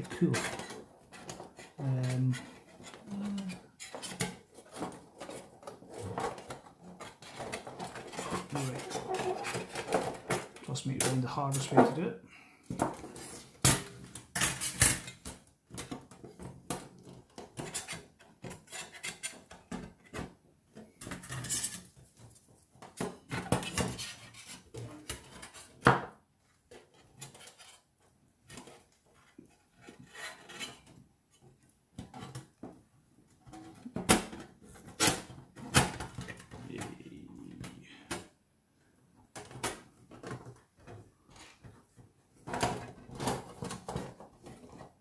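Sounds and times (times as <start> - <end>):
metal panels clinking and scraping: 0.1 - 12.0.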